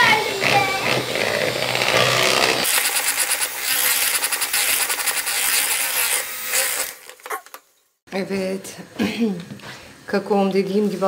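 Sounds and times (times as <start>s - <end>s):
electric hand mixer whisking: 0.0s - 7.5s.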